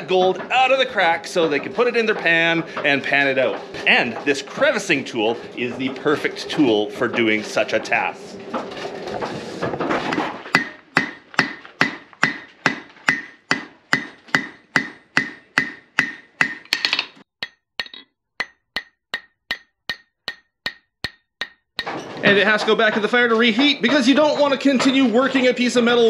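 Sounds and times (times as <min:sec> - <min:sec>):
hammer striking metal on anvil: 0:10.5 - 0:22.0.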